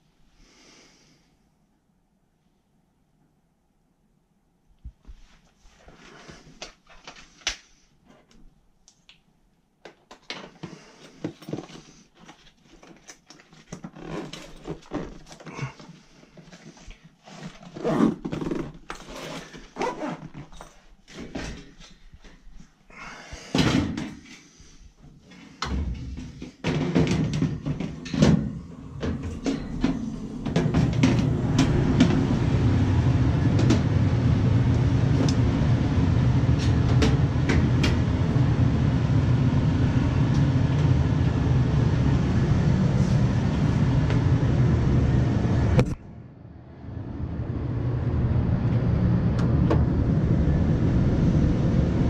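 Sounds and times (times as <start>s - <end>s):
tool bag rustling: 10.5s - 22.1s
tools clunking and knocking: 25.6s - 32.2s
steady low rumble: 28.5s - 52.0s.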